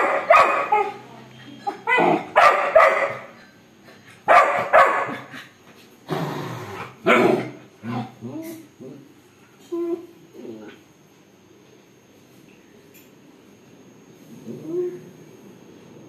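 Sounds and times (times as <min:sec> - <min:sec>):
puppy barking: 0:00.0 - 0:01.0, 0:01.7 - 0:03.4, 0:04.2 - 0:05.3, 0:07.0 - 0:07.6.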